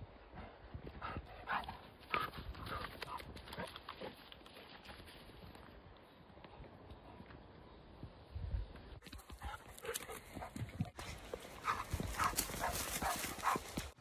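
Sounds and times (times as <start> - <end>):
rustling vegetation: 1.8 - 14.0.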